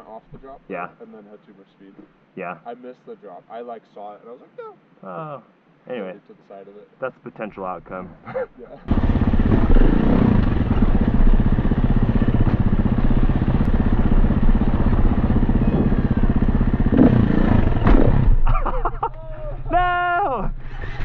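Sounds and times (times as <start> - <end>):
dirt bike engine running: 8.9 - 19.1.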